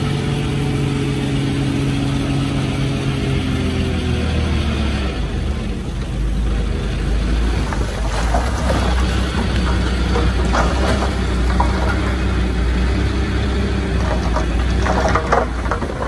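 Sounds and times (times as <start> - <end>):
bulldozer diesel engine running: 0.0 - 16.0
metallic clanks and rattles: 7.6 - 13.0, 13.8 - 16.0.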